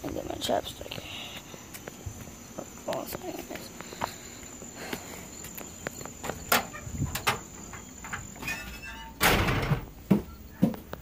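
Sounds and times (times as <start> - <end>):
insect trilling: 0.1 - 9.2
footsteps and knocks: 1.5 - 11.0
door scraping open: 6.2 - 10.0
door thump shut: 9.2 - 10.2.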